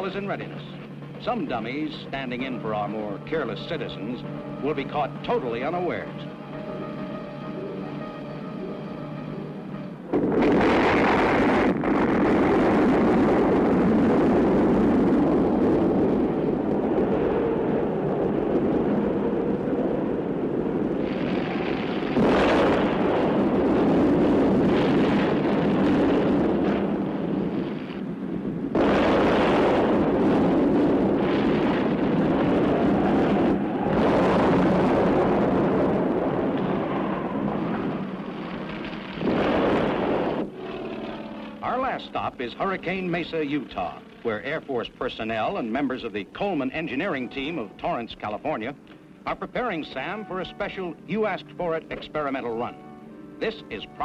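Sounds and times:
explosion rumbling: 0:10.1 - 0:48.0.

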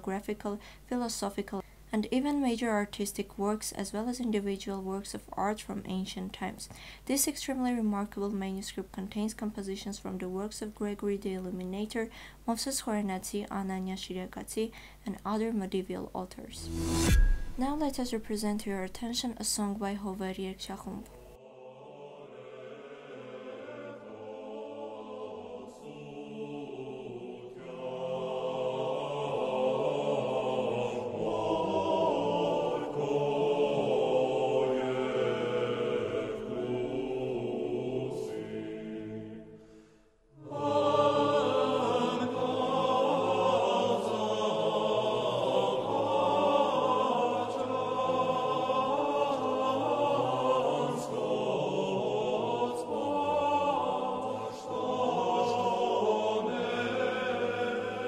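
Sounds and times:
choir singing: 0:21.4 - 0:58.0.

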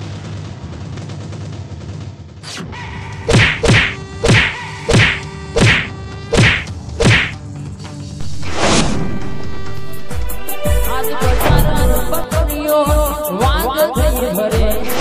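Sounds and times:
music: 0:00.0 - 0:15.0
loud whoosh: 0:03.3 - 0:07.4, 0:08.2 - 0:12.3, 0:14.6 - 0:15.0
punch whacks with swish: 0:03.3 - 0:07.4.

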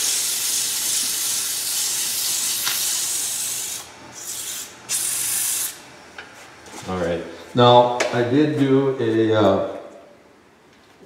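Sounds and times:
sandpaper hissing on spinning wood: 0:00.0 - 0:05.8.

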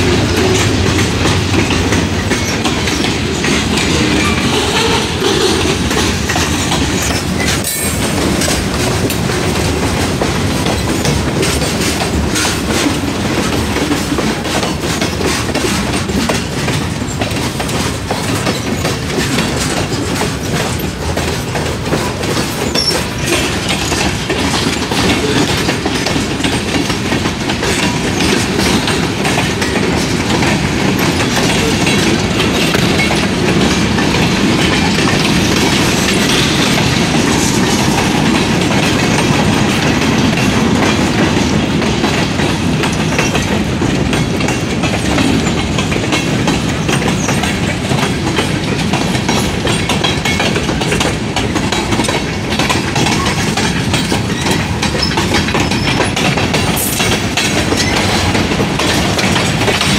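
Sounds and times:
freight train rumbling past: 0:00.0 - 0:59.9
wheels clacking over rail joints: 0:00.0 - 0:59.9.

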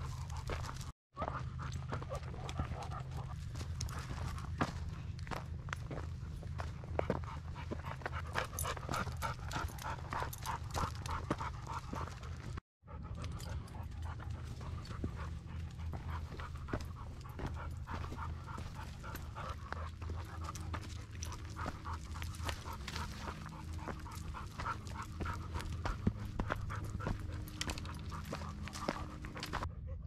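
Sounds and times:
dog panting rapidly: 0:06.3 - 0:30.0.

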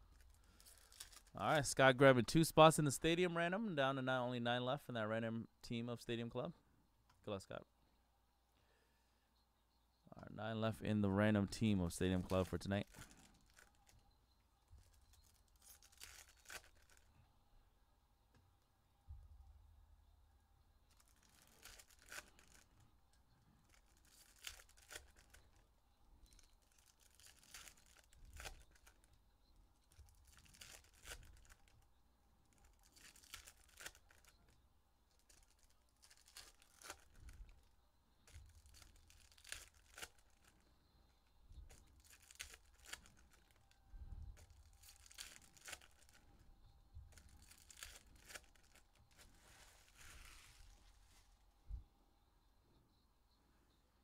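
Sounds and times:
foil wrappers tearing and crinkling: 0:00.1 - 0:01.4, 0:12.3 - 0:14.0, 0:14.8 - 0:17.1, 0:20.9 - 0:22.7, 0:23.6 - 0:25.6, 0:26.3 - 0:29.2, 0:29.8 - 0:31.8, 0:32.5 - 0:37.7, 0:38.3 - 0:40.6, 0:41.7 - 0:43.8, 0:44.4 - 0:46.3, 0:47.1 - 0:51.2.

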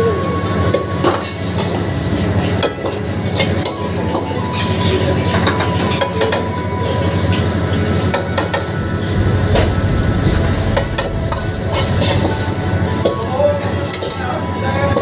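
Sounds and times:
gas burner rumble: 0:08.6 - 0:13.6.

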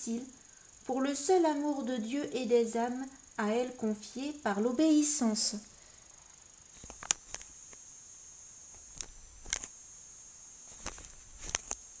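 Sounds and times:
paper pages crackling and rustling: 0:10.7 - 0:11.8.

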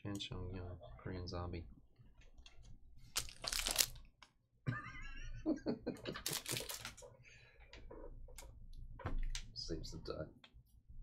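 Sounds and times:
plastic wrapping crinkling: 0:03.1 - 0:04.1, 0:06.2 - 0:07.0.

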